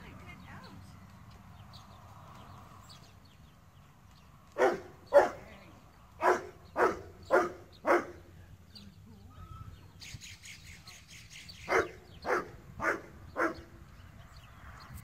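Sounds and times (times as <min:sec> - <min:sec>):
dog barking: 0:04.6 - 0:05.4, 0:06.2 - 0:08.2, 0:11.7 - 0:13.6.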